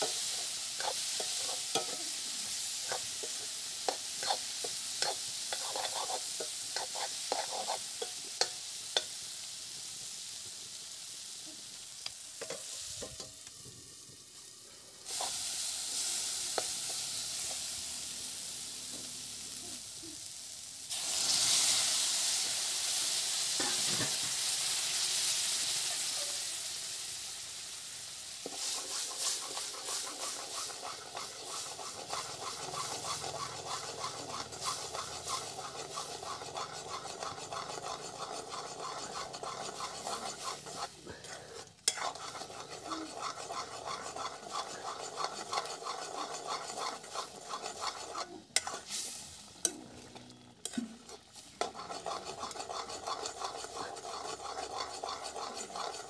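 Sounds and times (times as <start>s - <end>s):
metal spatula scraping pan: 0.0s - 9.1s, 28.4s - 49.8s, 50.6s - 56.0s
masala sizzling in hot oil: 0.0s - 56.0s.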